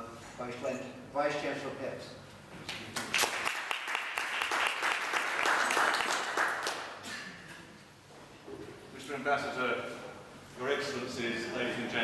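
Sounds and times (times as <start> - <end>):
audience applauding: 3.0 - 6.9.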